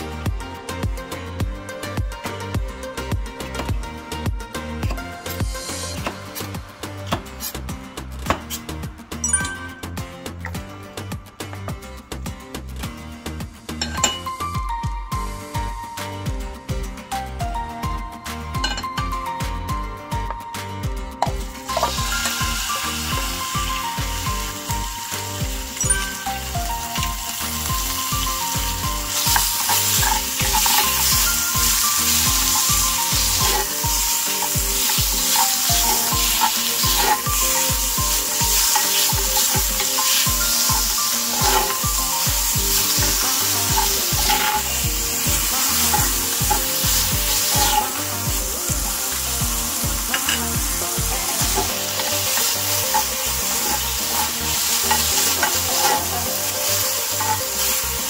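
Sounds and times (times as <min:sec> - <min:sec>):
food sizzling in frying pan: 0:21.4 - 0:58.0
wooden spatula scraping pan: 0:29.3 - 0:37.7, 0:41.3 - 0:41.8, 0:45.7 - 0:48.0, 0:51.1 - 0:57.6.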